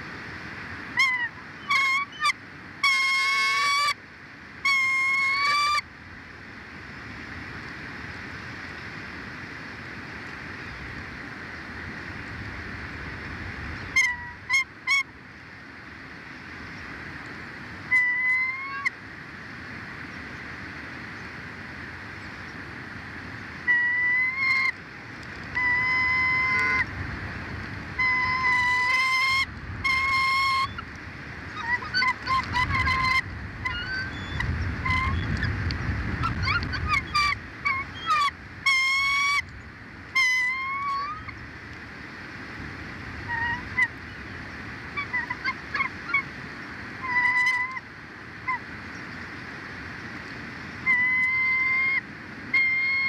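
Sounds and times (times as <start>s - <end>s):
loud honking bird calls: 1.0s - 4.0s, 4.6s - 5.8s, 13.9s - 15.1s, 25.5s - 26.9s, 28.0s - 30.9s, 31.5s - 35.5s, 36.2s - 39.5s, 40.1s - 41.4s.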